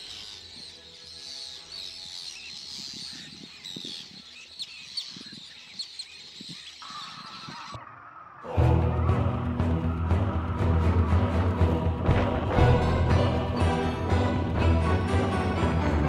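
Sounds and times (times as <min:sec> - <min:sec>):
many birds chirping: 0:00.0 - 0:11.7.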